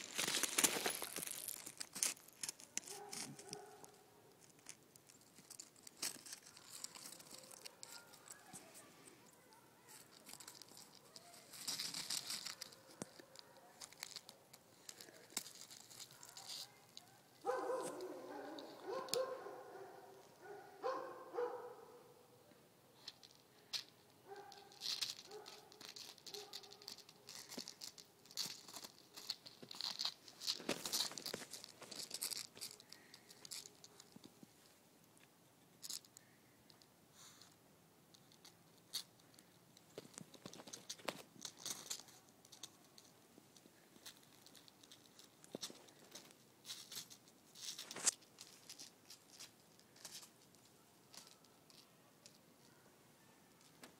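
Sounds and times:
dog paws crunching on icy snow: 0:00.0 - 0:21.8, 0:24.3 - 0:34.4.

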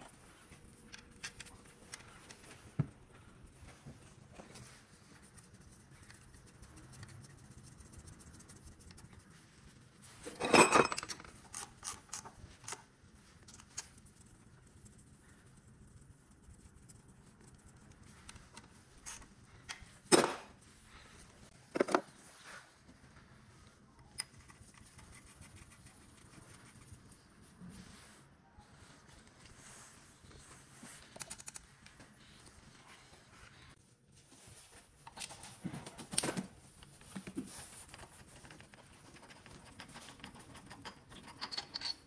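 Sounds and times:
metal tools clinking on metal: 0:10.3 - 0:12.2.

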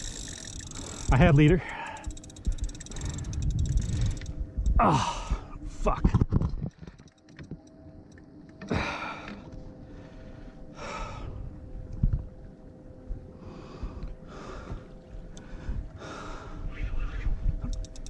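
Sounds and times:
man breathing hard: 0:00.7 - 0:05.6, 0:08.7 - 0:11.6, 0:13.4 - 0:16.8.

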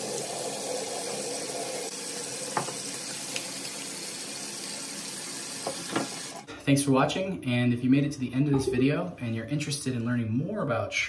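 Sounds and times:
tap running into sink: 0:02.5 - 0:03.5, 0:05.6 - 0:06.3.

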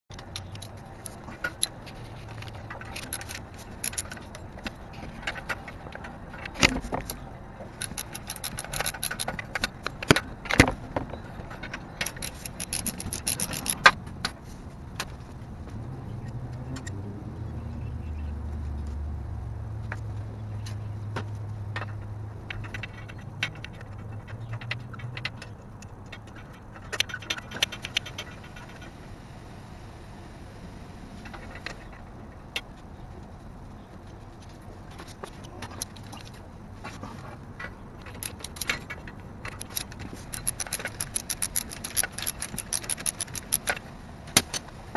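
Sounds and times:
metallic clicks and scrapes of tools: 0:00.1 - 0:15.2, 0:21.8 - 0:29.0, 0:34.3 - 0:44.8.

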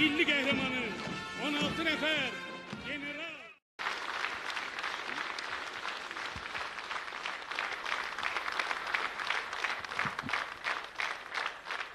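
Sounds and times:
audience applauding: 0:03.8 - 0:11.9.

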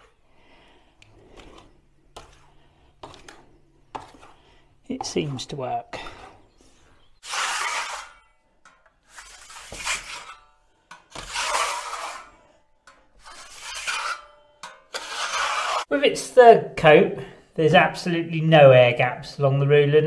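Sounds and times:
trowel scraping wet plaster: 0:01.3 - 0:04.4, 0:05.0 - 0:08.3, 0:09.0 - 0:12.5, 0:13.1 - 0:15.9.

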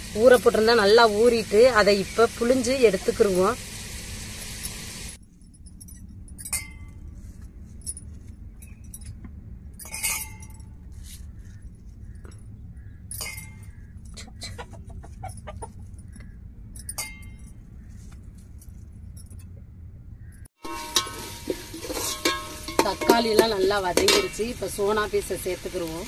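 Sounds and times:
hen clucking: 0:14.1 - 0:16.4.

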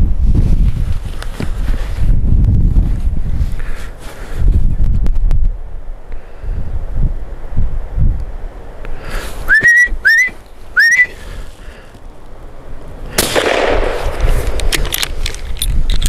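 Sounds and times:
person whistling short rising notes: 0:09.4 - 0:11.2.

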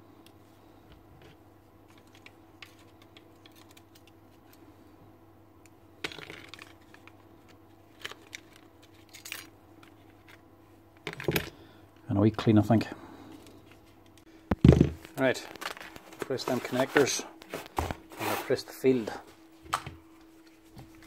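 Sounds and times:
faint steady hum: 0:00.0 - 0:21.0
plastic parts clicking and rattling: 0:01.9 - 0:04.6, 0:06.0 - 0:10.4, 0:11.0 - 0:11.6, 0:14.6 - 0:16.4.

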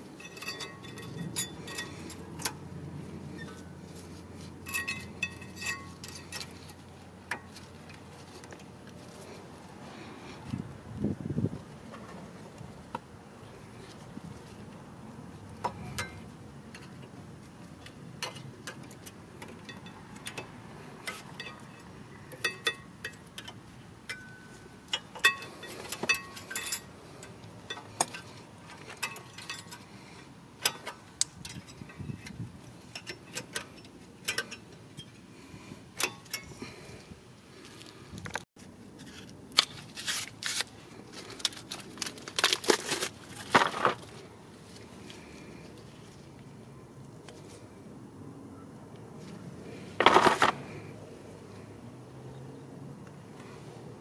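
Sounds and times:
metallic clicks and clinks: 0:00.2 - 0:02.6, 0:04.6 - 0:08.8, 0:17.8 - 0:35.3.

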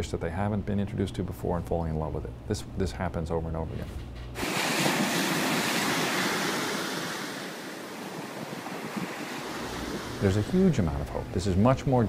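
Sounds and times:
surf washing up on sand: 0:04.4 - 0:11.3.

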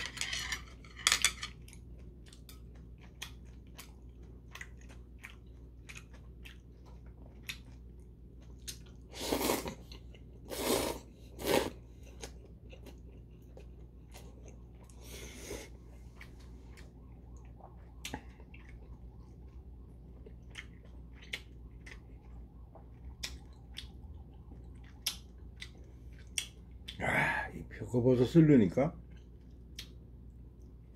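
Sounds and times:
noodle slurps: 0:09.1 - 0:09.8, 0:10.5 - 0:11.8
wet mouth clicks and smacks: 0:24.8 - 0:26.6.

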